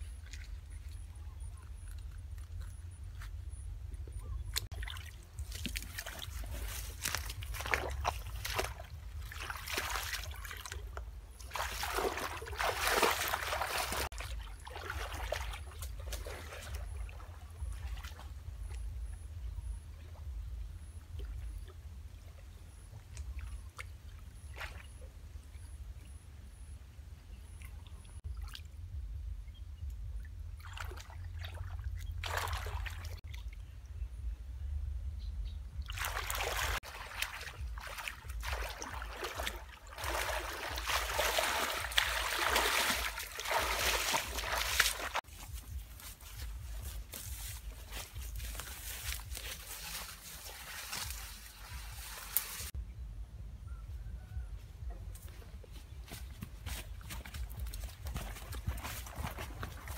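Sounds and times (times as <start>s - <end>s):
pond water splashing: 0.0s - 26.7s, 27.3s - 29.0s, 30.2s - 33.7s, 35.7s - 52.8s, 56.3s - 59.9s.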